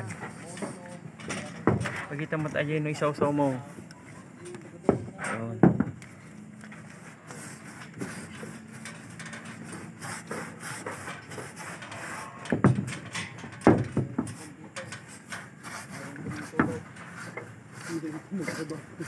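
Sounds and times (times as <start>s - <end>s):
paintbrush scrubbing metal roof: 0.0s - 19.0s
knocks on metal sheet: 1.6s - 2.0s, 4.8s - 6.0s, 12.5s - 14.4s.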